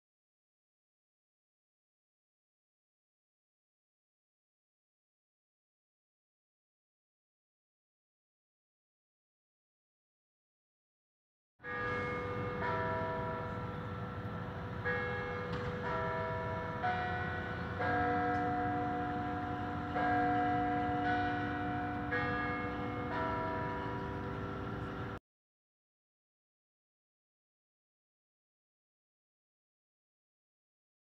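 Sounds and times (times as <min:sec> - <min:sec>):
carillon bells playing a slow tune: 0:11.6 - 0:25.2.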